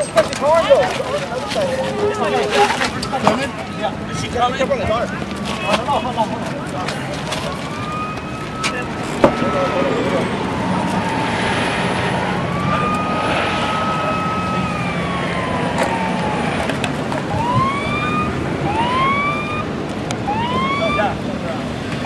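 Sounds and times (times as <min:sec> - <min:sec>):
emergency vehicle siren: 0:00.0 - 0:04.1, 0:06.6 - 0:22.0
road noise: 0:00.0 - 0:22.0.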